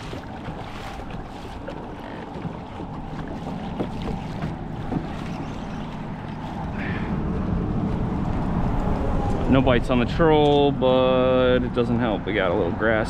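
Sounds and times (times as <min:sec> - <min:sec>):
washing water: 0:00.0 - 0:09.5
wind buffeting microphone: 0:00.0 - 0:12.8.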